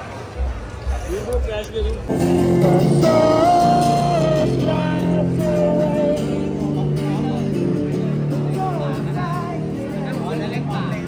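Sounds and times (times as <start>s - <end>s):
guitar accompaniment: 1.4s - 11.0s
person singing: 2.1s - 9.8s.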